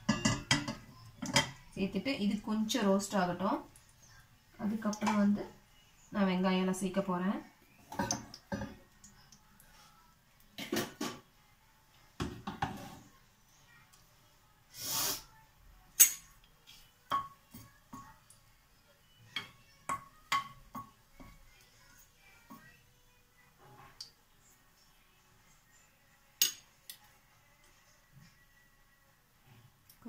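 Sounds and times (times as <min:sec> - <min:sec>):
metal ladle clinking on pan: 0:00.0 - 0:01.6, 0:16.0 - 0:16.3.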